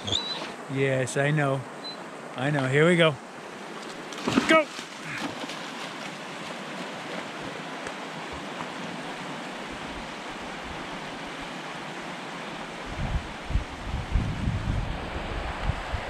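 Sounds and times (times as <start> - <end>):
river rushing over rocks: 3.2 - 13.9
wind buffeting microphone: 12.8 - 16.0.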